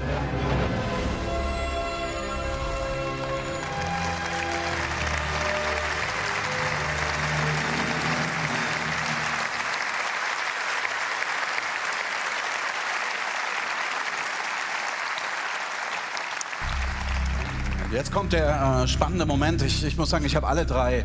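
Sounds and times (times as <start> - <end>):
low music: 0.0 - 9.8, 16.6 - 21.0
audience applauding: 2.1 - 19.0.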